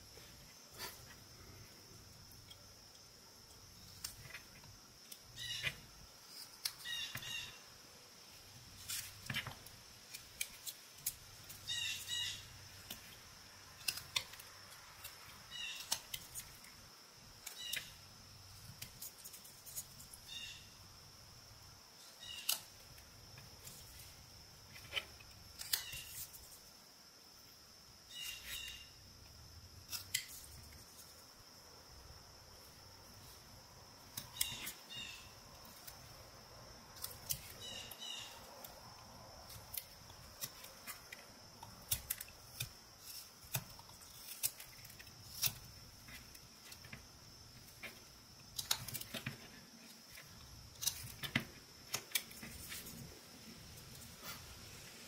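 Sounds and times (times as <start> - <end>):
knife whittling wood: 22.2 - 26.7, 33.3 - 36.2, 39.4 - 53.1
blade squeaking on wood: 34.2 - 35.3.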